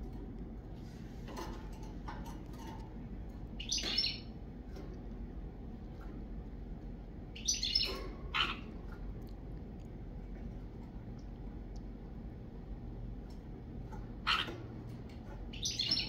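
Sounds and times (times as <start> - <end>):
low background hum: 0.0 - 16.0
sparrows chirping: 3.4 - 4.4, 7.3 - 8.9, 14.2 - 14.6, 15.4 - 16.0.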